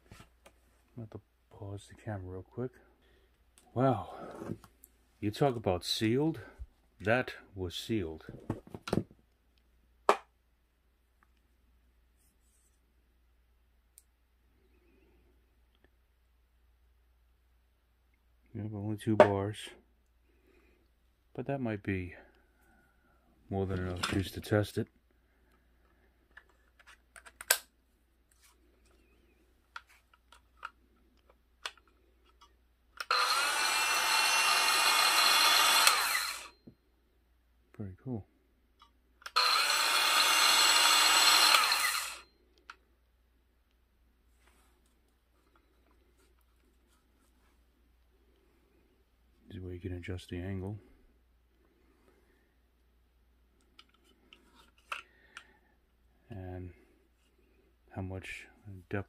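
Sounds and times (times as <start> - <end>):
circular saw spinning: 33.1 - 36.5, 39.3 - 42.2.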